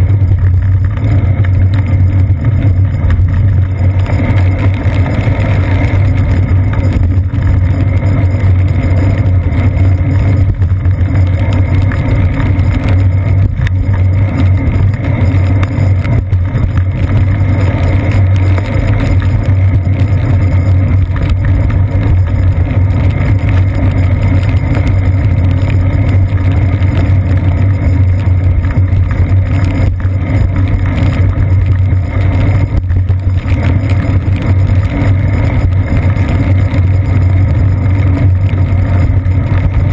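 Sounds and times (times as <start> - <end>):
bicycle road vibration: 0.0 - 39.9
wind rumble: 0.0 - 39.9.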